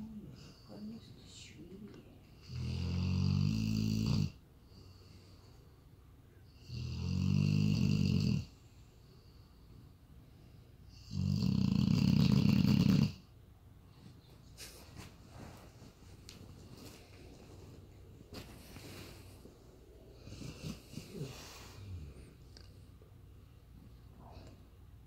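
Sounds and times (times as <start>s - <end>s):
dog snoring: 2.4s - 5.0s, 6.5s - 8.6s, 10.9s - 13.3s, 20.2s - 22.5s.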